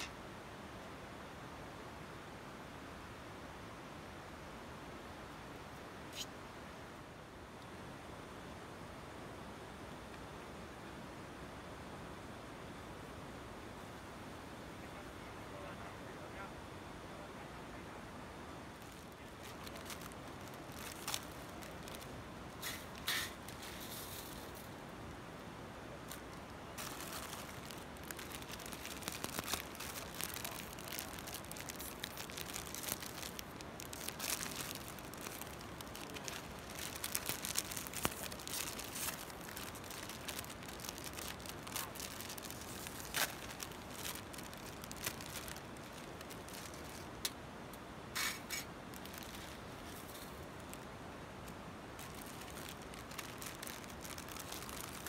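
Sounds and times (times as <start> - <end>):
faint steady hiss: 0.0 - 55.0
plastic wrappers crinkling and tearing: 18.8 - 24.7, 26.1 - 47.4, 48.2 - 50.8, 52.0 - 55.0.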